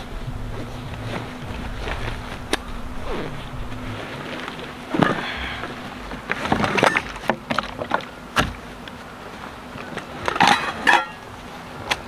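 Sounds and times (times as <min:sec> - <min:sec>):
fabric rustling: 0:00.0 - 0:07.3.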